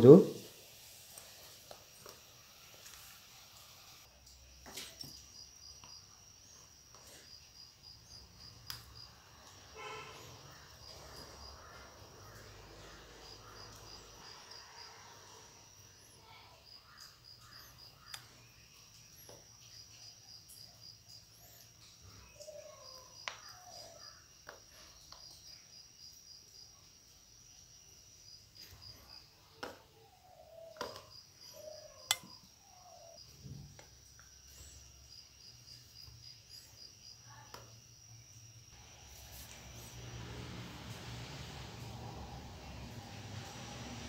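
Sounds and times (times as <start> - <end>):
insect chirping: 0.0 - 44.0.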